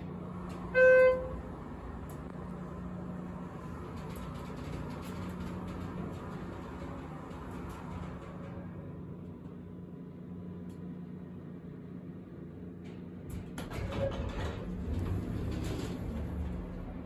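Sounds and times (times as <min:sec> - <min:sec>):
elevator doors sliding open: 0:00.0 - 0:09.8, 0:13.0 - 0:17.0
elevator low hum: 0:00.0 - 0:17.0.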